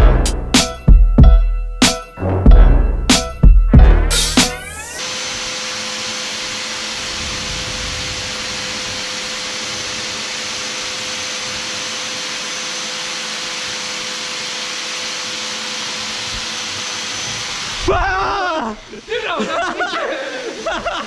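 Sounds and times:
fan running: 0:04.7 - 0:21.0.

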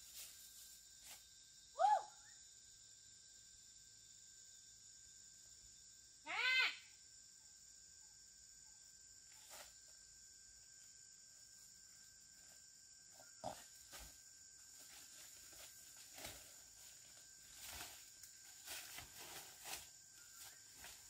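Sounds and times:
insects buzzing: 0:00.0 - 0:21.0
brushing through undergrowth: 0:14.8 - 0:21.0
footsteps crunching dry leaves: 0:14.9 - 0:21.0.

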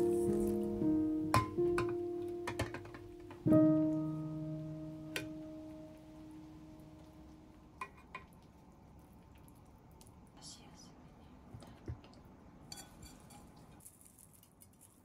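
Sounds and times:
soft piano chord ringing: 0:00.0 - 0:07.8.

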